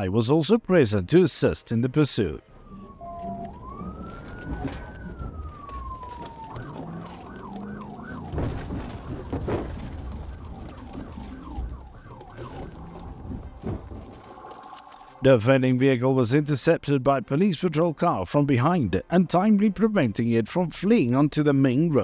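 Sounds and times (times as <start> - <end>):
police siren wailing and yelping: 2.6 - 13.6.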